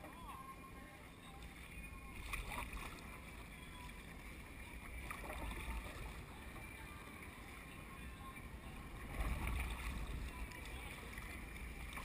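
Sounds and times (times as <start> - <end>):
water lapping against kayak hull: 0.0 - 12.0
wind rumble on microphone: 3.8 - 12.0.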